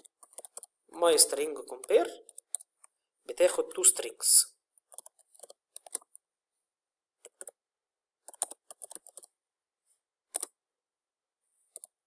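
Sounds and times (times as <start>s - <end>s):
computer keyboard typing: 0.0s - 0.8s, 1.8s - 2.7s, 4.8s - 6.2s, 7.2s - 7.6s, 8.2s - 9.3s, 10.3s - 10.6s.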